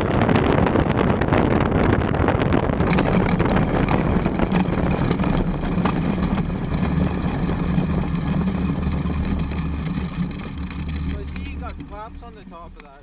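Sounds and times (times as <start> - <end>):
light aircraft engine droning: 8.0 - 13.0.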